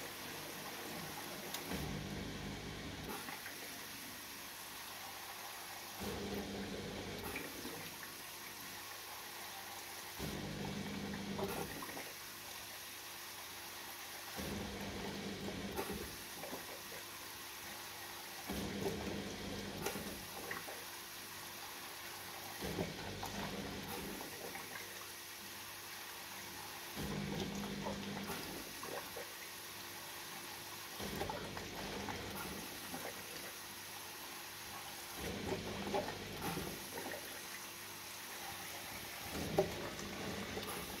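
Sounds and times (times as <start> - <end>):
dishwasher hum: 0.0 - 8.4, 10.1 - 12.2, 14.3 - 17.2, 18.0 - 20.9, 22.2 - 25.1, 26.5 - 29.4, 30.9 - 33.7, 34.4 - 41.0
dishwasher water swishing: 30.9 - 33.7, 34.6 - 41.0.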